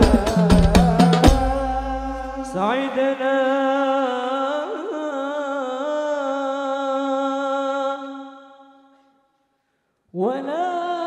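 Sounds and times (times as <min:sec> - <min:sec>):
man singing a long held note: 0:00.0 - 0:08.7.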